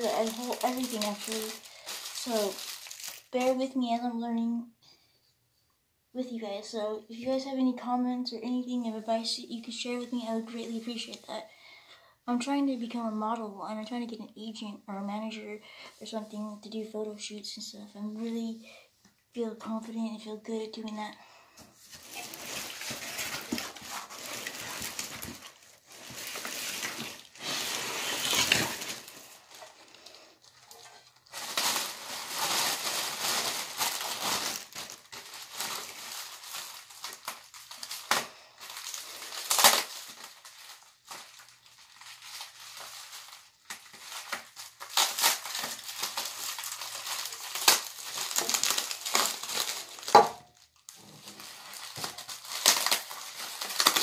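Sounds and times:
plastic packaging crinkling: 0:00.0 - 0:03.7, 0:21.9 - 0:54.0.

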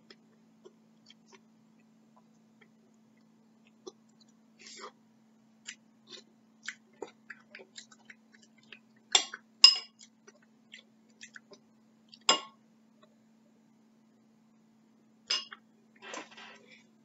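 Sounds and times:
soft chewing and mouth clicks: 0:00.0 - 0:05.0, 0:05.6 - 0:12.3
steady low hum: 0:00.0 - 0:17.0
metal spoon clinking ceramic bowl: 0:09.6 - 0:10.0.

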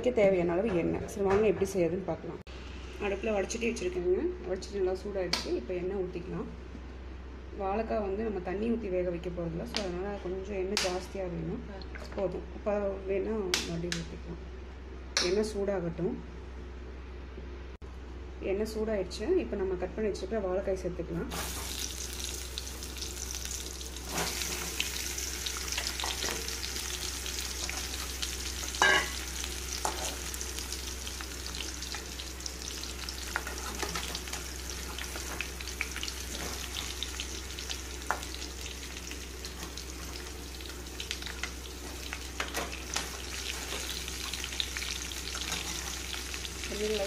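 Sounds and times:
plantain frying in oil: 0:21.3 - 0:47.0.

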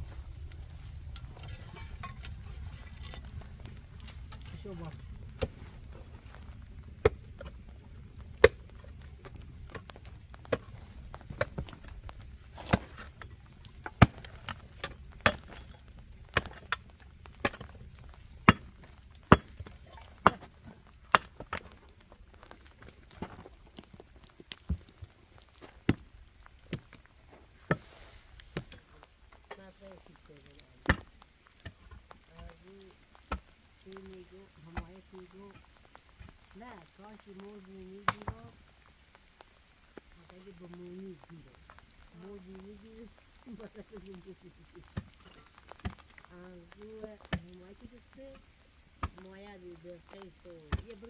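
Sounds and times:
low rumble: 0:00.0 - 0:25.5.

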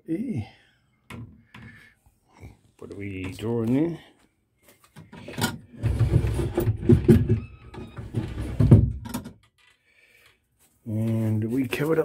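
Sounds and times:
wooden drawer scraping and knocking: 0:05.3 - 0:09.3.

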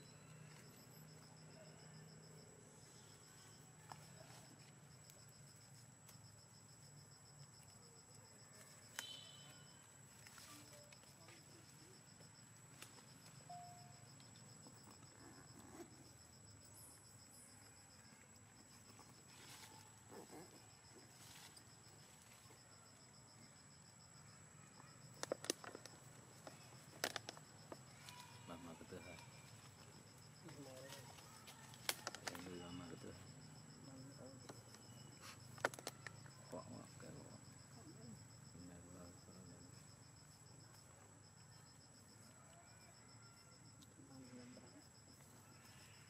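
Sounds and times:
faint pulsing high tone: 0:13.4 - 0:14.4.

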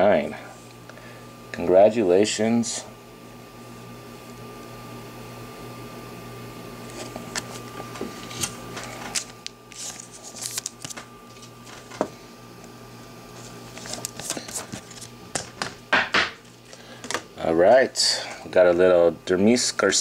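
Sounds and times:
cards sliding and shuffling: 0:06.9 - 0:12.1, 0:13.4 - 0:15.6.

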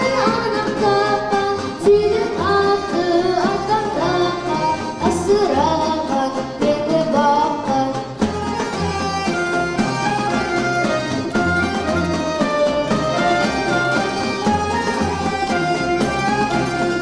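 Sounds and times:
boy singing folk song: 0:00.0 - 0:08.6
double bass: 0:00.0 - 0:17.0
plucked lutes: 0:00.0 - 0:17.0.

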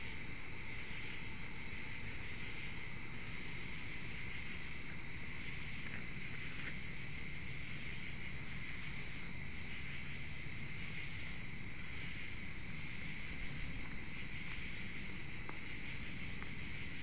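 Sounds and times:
crickets chirping: 0:00.0 - 0:17.0
low rumbling microphone hiss: 0:00.0 - 0:17.0.

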